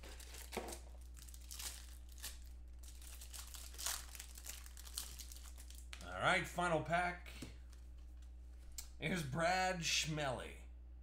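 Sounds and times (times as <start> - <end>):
plastic crinkling and rustling: 0.0 - 6.1.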